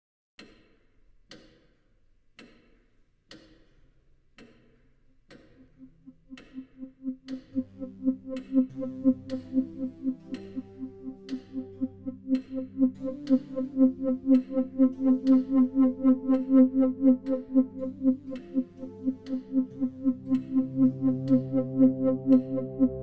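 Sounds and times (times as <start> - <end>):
clock-like tick: 0.4 - 23.0
low synthesizer drones: 5.6 - 23.0
fast-pulsing synthesizer note: 6.1 - 23.0.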